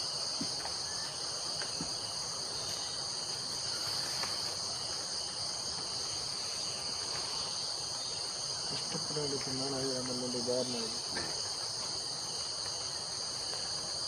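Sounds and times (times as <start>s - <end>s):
high-pitched insect chorus: 0.0s - 14.0s.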